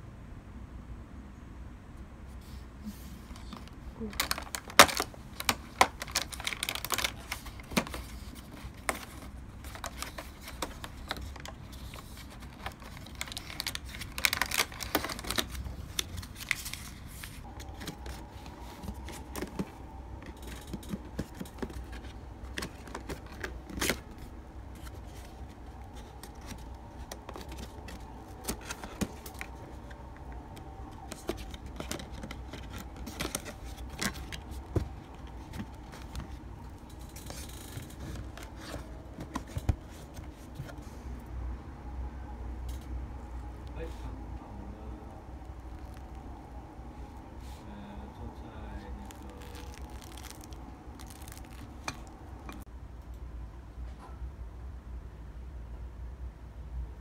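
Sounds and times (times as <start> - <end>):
faint steady hum: 0.0 - 57.0
cardboard rustling and tearing: 4.0 - 29.6, 48.9 - 52.6.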